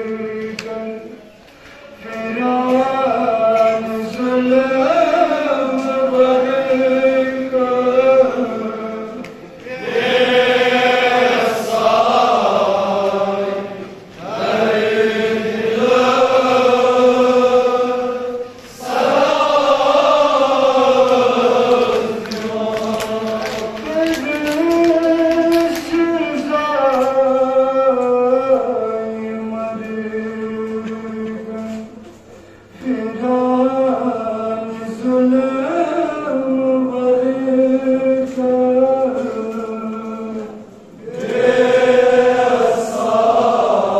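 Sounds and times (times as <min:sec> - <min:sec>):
man singing lament into microphone: 0:00.0 - 0:01.2, 0:01.9 - 0:09.6, 0:14.5 - 0:32.1, 0:32.7 - 0:40.7
crowd singing chorus: 0:02.0 - 0:24.6, 0:36.8 - 0:43.9.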